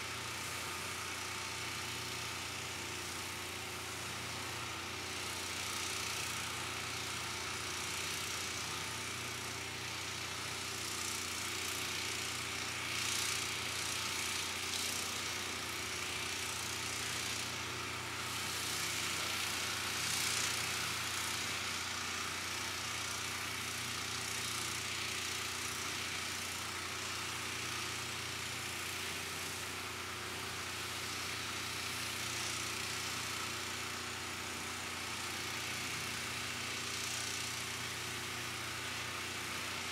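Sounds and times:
hiss: 9.9s - 39.9s.

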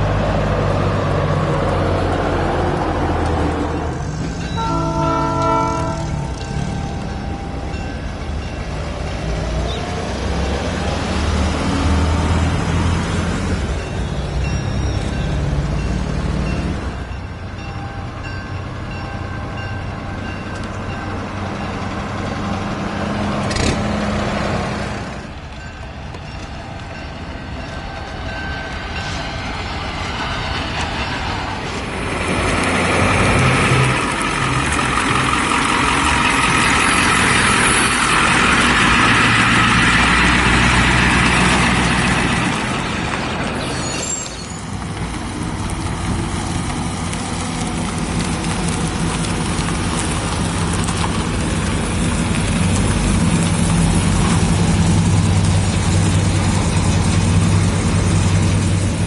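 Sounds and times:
truck engine driving past: 8.1s - 17.0s, 31.5s - 59.0s.

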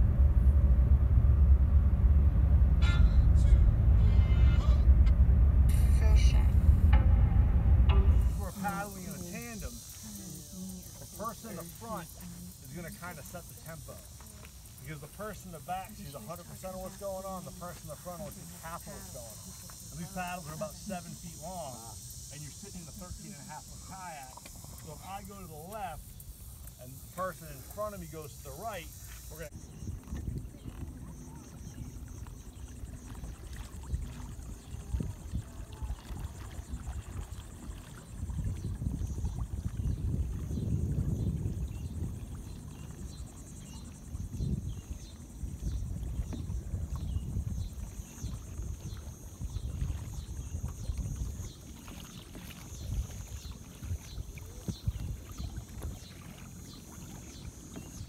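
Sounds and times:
wind buffeting microphone: 0.0s - 12.6s, 29.5s - 51.7s, 52.3s - 56.7s
water lapping against kayak hull: 0.0s - 58.0s
insects buzzing: 7.9s - 58.0s.

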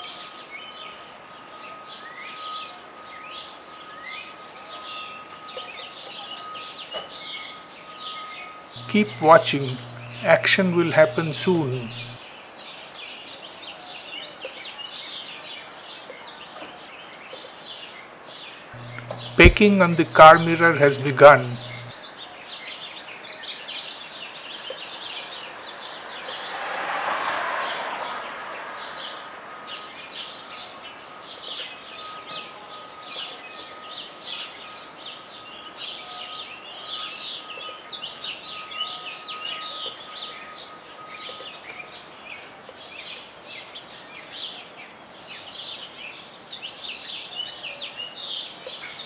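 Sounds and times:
faint steady high tone: 8.8s - 12.2s, 18.8s - 21.9s.

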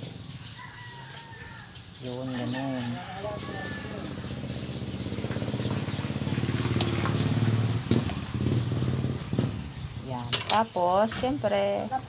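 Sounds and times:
engine pulsing hum: 3.3s - 10.1s.

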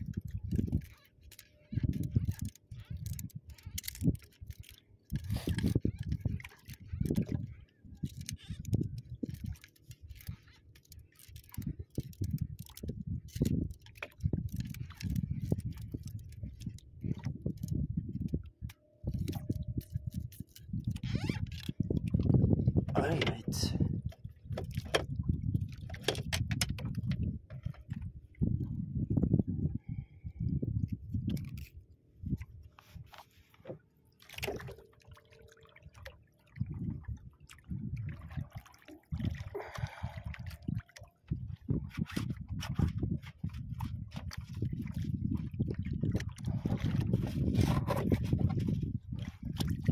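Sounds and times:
water slapping against boat: 0.0s - 28.8s, 32.3s - 49.9s
fishing line clicking on spool: 0.1s - 21.8s.

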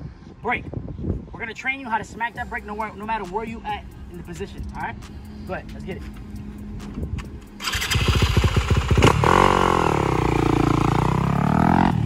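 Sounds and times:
dirt bike engine revving: 7.6s - 12.0s.

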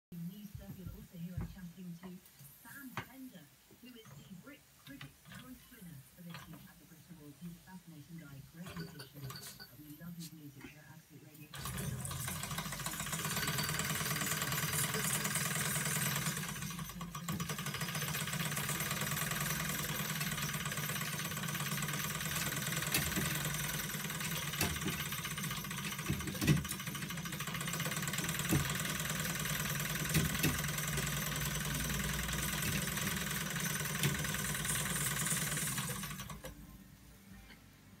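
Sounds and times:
model steam engine clatter: 11.6s - 36.4s.

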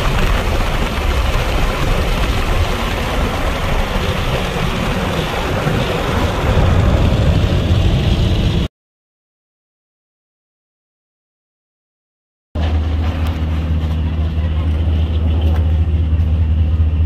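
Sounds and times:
car driving rumble: 12.6s - 17.0s.

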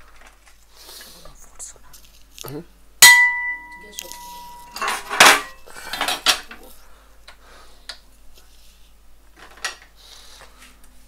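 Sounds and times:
metal cookware clattering: 3.0s - 6.6s.

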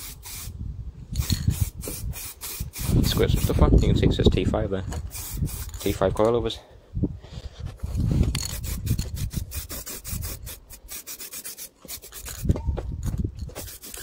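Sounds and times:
aerosol can spraying: 0.0s - 0.5s, 1.2s - 3.6s, 5.0s - 5.9s, 8.4s - 12.5s, 13.5s - 14.0s
rubbing and handling noise: 7.2s - 14.0s.

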